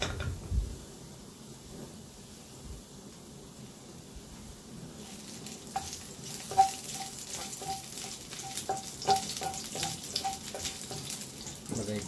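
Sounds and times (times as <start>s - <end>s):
garlic sizzling in oil: 4.9s - 12.0s
metal utensil clinking on pan: 5.8s - 11.6s.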